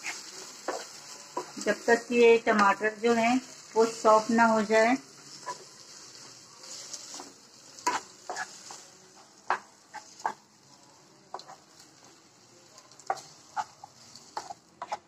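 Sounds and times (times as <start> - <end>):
spatula scraping and knocking pan: 0.0 - 3.0, 3.7 - 10.5, 13.0 - 15.0
vegetables sizzling in a pan: 0.0 - 15.0.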